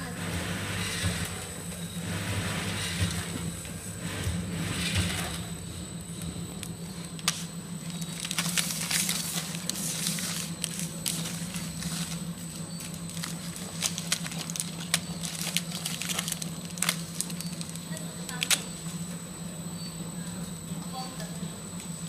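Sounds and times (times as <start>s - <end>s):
packing machine humming: 0.0s - 22.0s
plastic sachets crinkling: 6.5s - 18.7s.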